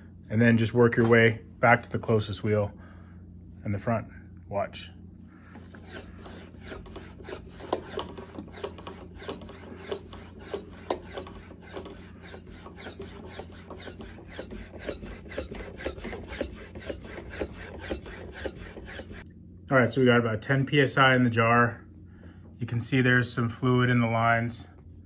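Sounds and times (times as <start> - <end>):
hand pump strokes: 5.5 - 19.2.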